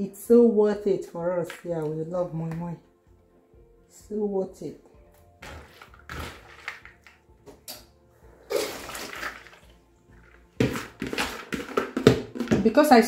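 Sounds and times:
water sloshing in a plastic bowl: 5.4s - 7.2s, 8.5s - 12.8s.

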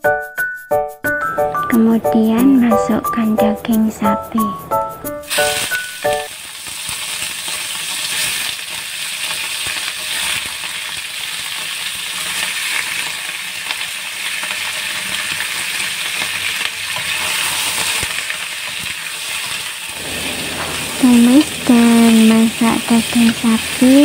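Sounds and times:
meat sizzling in hot oil: 5.2s - 24.0s.

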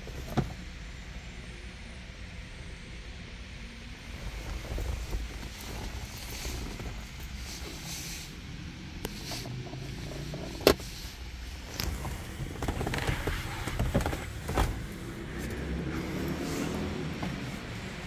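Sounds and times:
low steady rumble: 0.0s - 18.0s
handling clicks inside a car: 9.0s - 15.6s.

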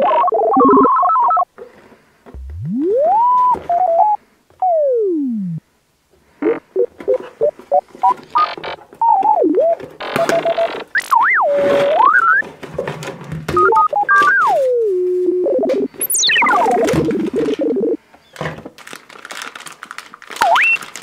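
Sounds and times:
playful synthesizer music: 2.4s - 5.6s, 14.1s - 18.0s.

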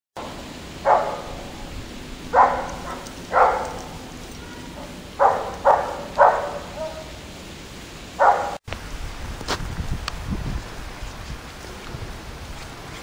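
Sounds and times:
dog barking: 0.8s - 1.5s, 2.3s - 7.2s, 8.2s - 8.6s.

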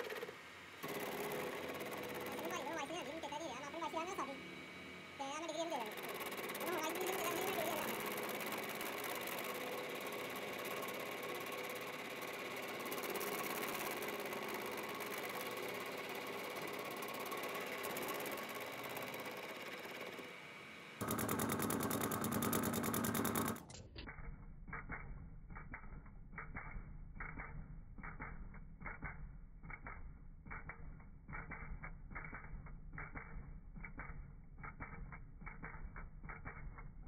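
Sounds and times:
end mill cutting metal: 0.0s - 23.6s.

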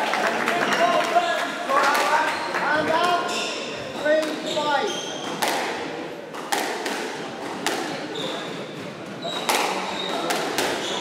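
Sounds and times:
squash ball hits echoing: 1.8s - 11.0s
short high squeaks: 3.2s - 5.4s.

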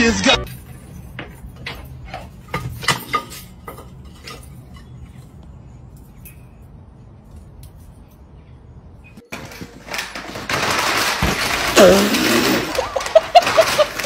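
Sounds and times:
plant pot clattering on paving: 0.4s - 5.4s, 9.2s - 14.0s.

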